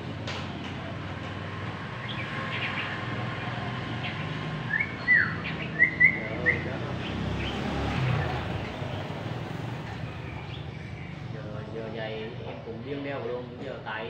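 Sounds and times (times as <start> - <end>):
bird chirping and whistling: 4.0 - 6.7.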